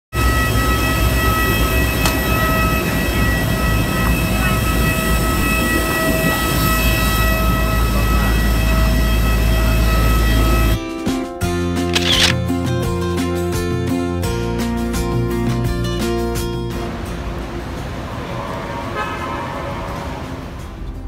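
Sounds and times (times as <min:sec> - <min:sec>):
aircraft engine rumble: 0:00.2 - 0:10.8
high whining engine tones: 0:00.2 - 0:10.8.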